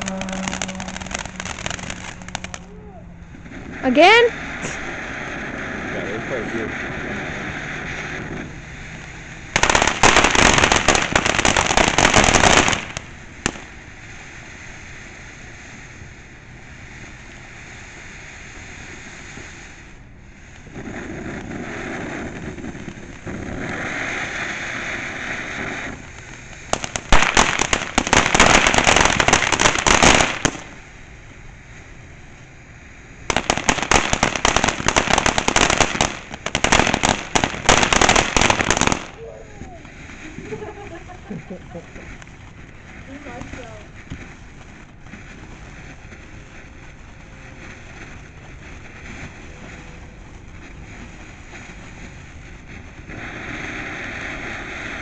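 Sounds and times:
fireworks hissing: 0.0s - 55.0s
fireworks rapid crackling: 0.0s - 55.0s.

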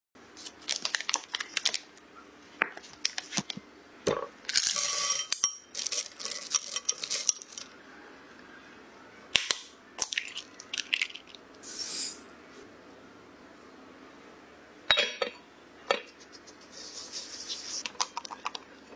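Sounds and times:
foil wrapper crinkling and tearing: 0.4s - 1.9s.

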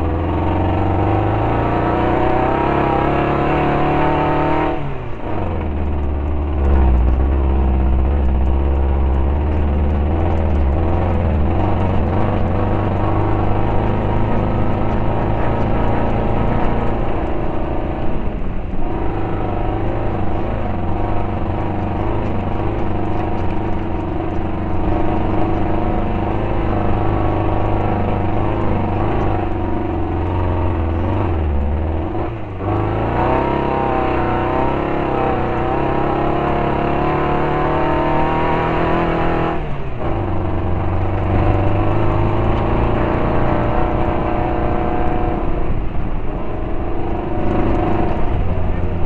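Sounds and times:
race car engine running hard: 0.0s - 49.0s.

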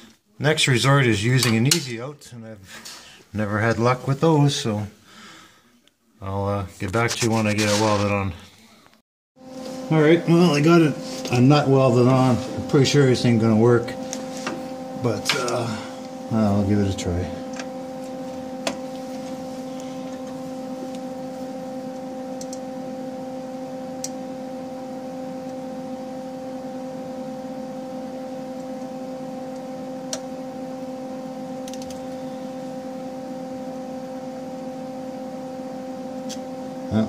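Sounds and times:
steady low hum: 9.4s - 37.0s.

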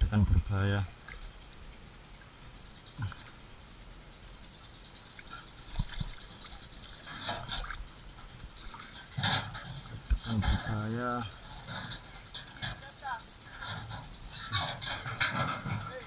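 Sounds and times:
water splashing and dripping: 0.6s - 3.6s, 4.8s - 10.6s.

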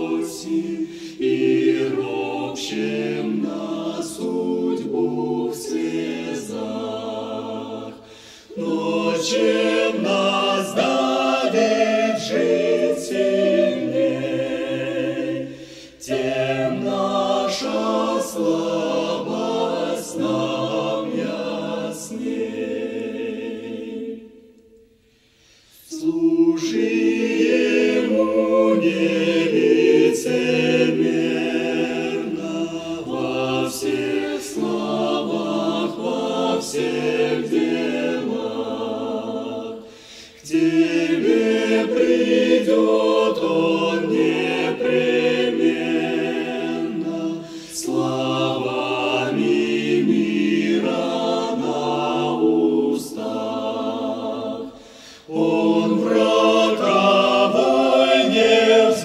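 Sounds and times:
choir singing a hymn: 0.0s - 59.0s.

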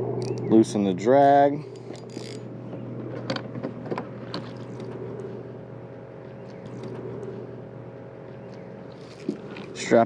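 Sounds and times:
low mechanical hum: 0.0s - 10.0s
fishing reel clicks and knocks: 0.2s - 0.5s, 1.8s - 2.4s.

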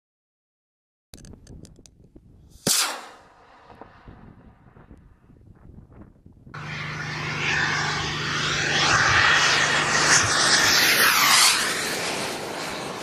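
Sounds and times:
airplane passing low: 6.5s - 13.0s.

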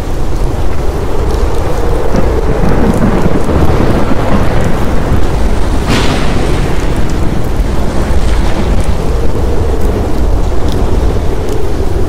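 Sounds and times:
heavy rain: 0.0s - 12.0s
low rumble of thunder: 0.0s - 12.0s
sharp thunder crack: 2.1s - 11.4s.

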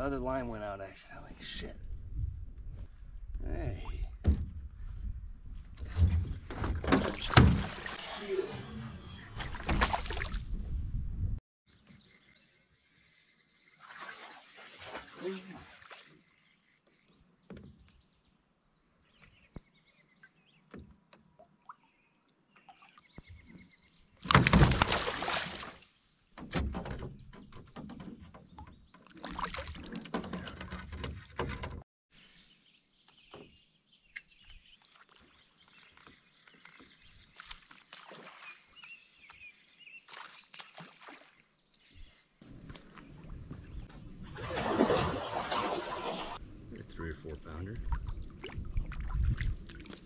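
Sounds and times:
water splashing: 6.8s - 8.5s, 9.4s - 10.6s, 13.8s - 16.8s, 24.3s - 25.9s, 27.8s - 30.4s, 34.8s - 39.4s, 40.1s - 41.5s, 42.5s - 46.4s, 47.2s - 50.0s.

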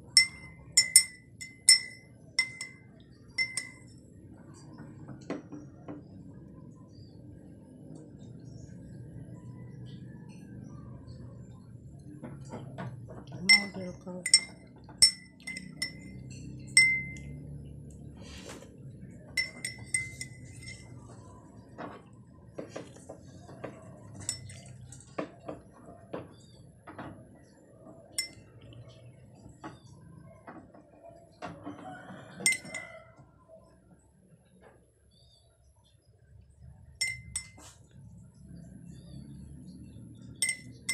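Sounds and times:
spoon clinking in a ceramic mug: 0.0s - 4.0s, 13.4s - 17.5s, 19.2s - 21.2s, 24.0s - 25.6s, 28.1s - 28.5s, 32.3s - 33.1s, 37.0s - 37.8s, 40.4s - 40.9s.

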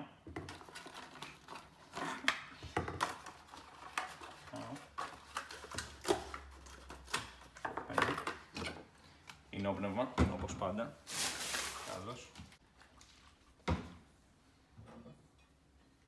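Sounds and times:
cardboard and plastic bag rustling: 11.0s - 12.6s.

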